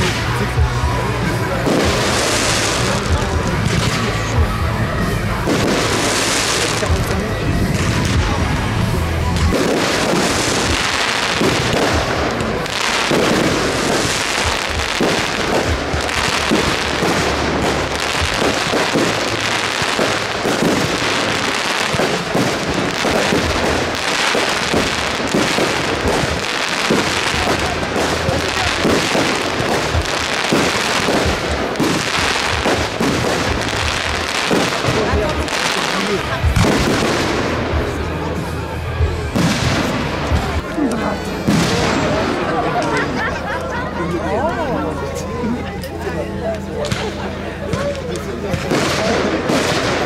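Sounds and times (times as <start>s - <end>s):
fireworks bangs and crackle: 0.0s - 50.0s.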